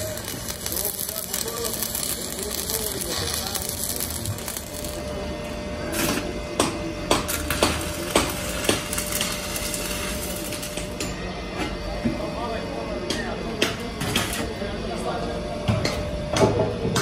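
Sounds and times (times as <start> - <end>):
workshop noise: 0.0 - 17.0
hammer striking steel: 6.1 - 9.4.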